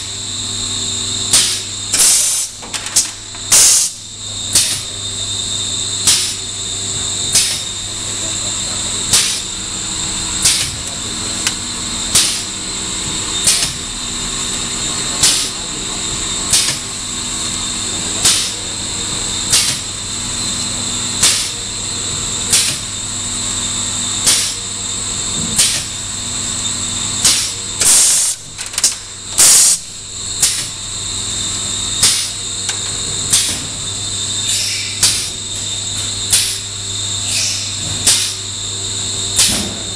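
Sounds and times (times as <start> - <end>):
winding machine humming and whining: 0.0 - 39.9.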